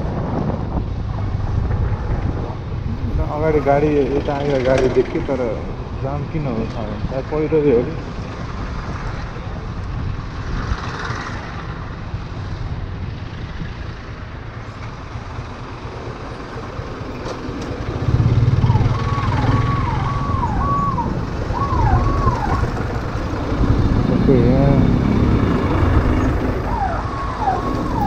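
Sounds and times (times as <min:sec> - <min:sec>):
road and wind noise: 0:00.0 - 0:28.0
electronic warning tone sweeping down: 0:18.2 - 0:22.8.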